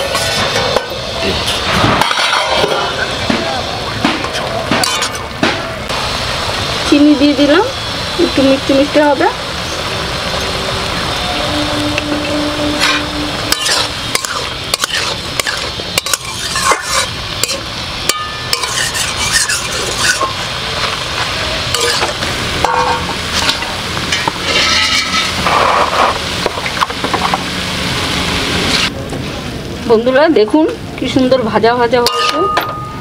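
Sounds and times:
frying sizzle: 0.0 - 33.0
metal spatula scraping a pan: 1.5 - 3.0, 12.0 - 20.9, 21.7 - 26.2.

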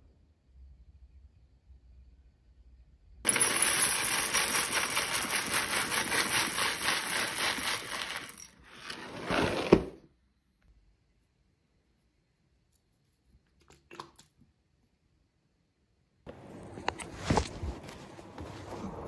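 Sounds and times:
cereal pouring into a glass bowl: 3.3 - 9.7.

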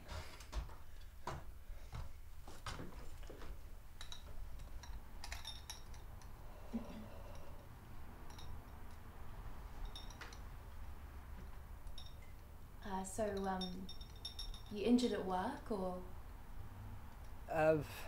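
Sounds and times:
low room hum: 0.0 - 18.0
glass pendants clinking: 3.9 - 15.1.

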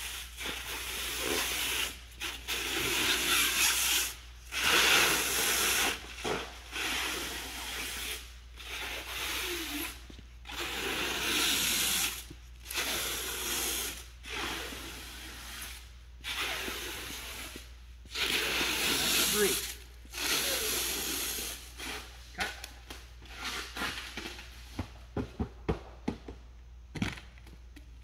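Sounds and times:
stretch film unwinding hiss: 0.0 - 24.4.

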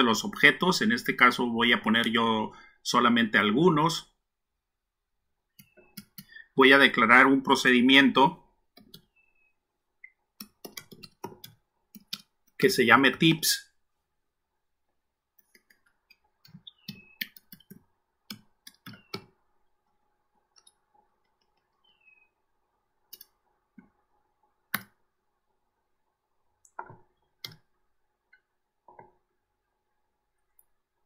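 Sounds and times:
computer keyboard keys clicking: 10.4 - 12.3, 15.5 - 19.3.

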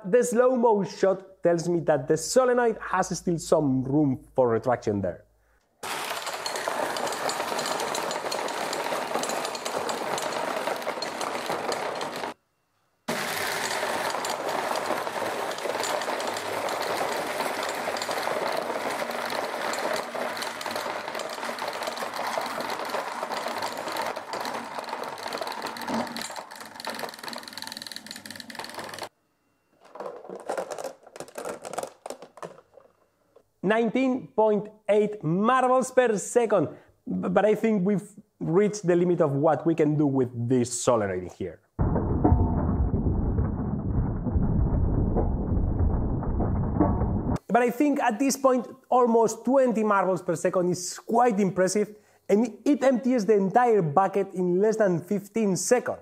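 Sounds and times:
marbles clacking in sorting machine: 5.8 - 12.4, 13.1 - 29.1, 29.8 - 32.9
marble clicks: 13.6 - 29.1, 29.8 - 33.4.

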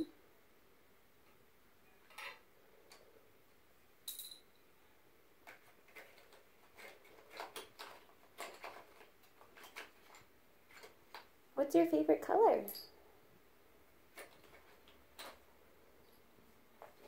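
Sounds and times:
colored pencils clicking: 5.4 - 11.3, 14.1 - 15.5.

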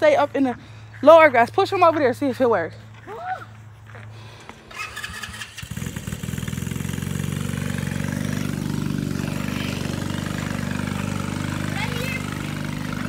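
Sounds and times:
small go-kart engine running: 4.7 - 13.0.

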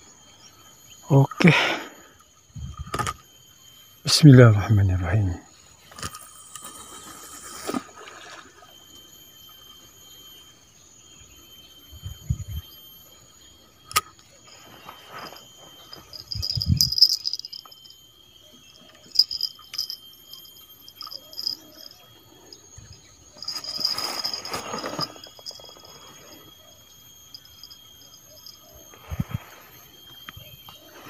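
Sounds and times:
insects calling: 0.0 - 31.0
high chirping: 11.2 - 31.0
rustling: 23.4 - 26.0.

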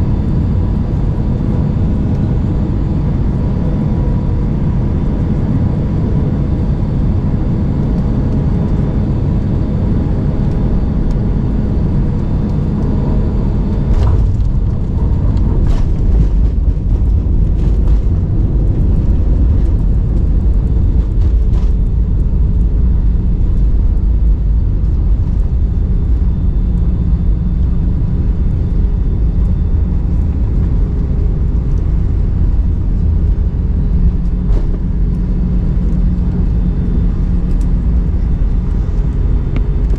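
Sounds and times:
faint cabin hum: 0.0 - 39.9
jet engine and airflow rumble: 0.0 - 39.9.

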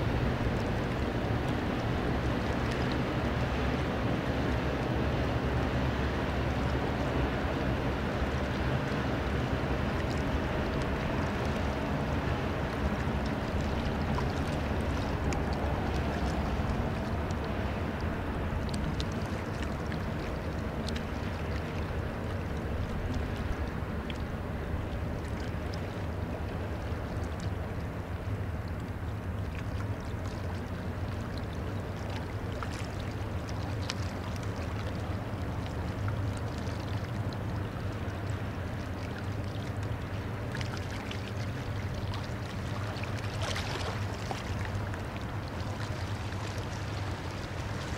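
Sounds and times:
diesel engine drone: 0.0 - 36.4
rushing water and wind: 0.0 - 47.9.

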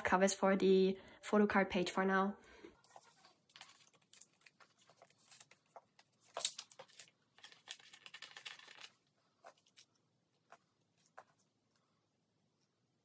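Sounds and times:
plastic rustling: 2.9 - 11.5
plastic sleeve crinkling: 2.9 - 11.5.

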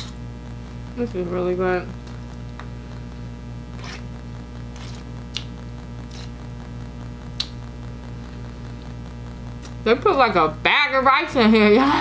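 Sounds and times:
steady low hum: 0.0 - 12.0
fork scraping foil pan: 3.8 - 4.1, 4.7 - 5.1, 6.1 - 6.4.

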